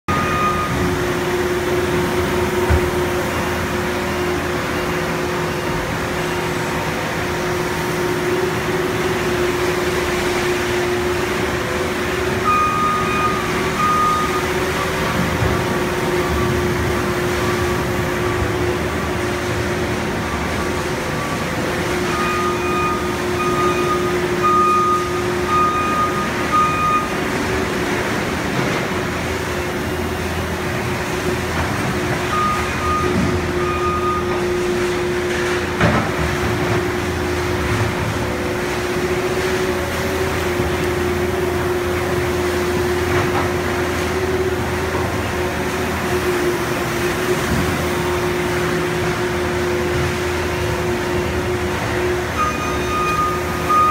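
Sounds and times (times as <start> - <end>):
conveyor industrial hum: 0.0 - 53.9
loader engine: 0.0 - 53.9
backup alarm beeps: 0.1 - 1.1, 12.4 - 15.1, 22.0 - 27.3, 32.3 - 34.6, 52.3 - 53.9.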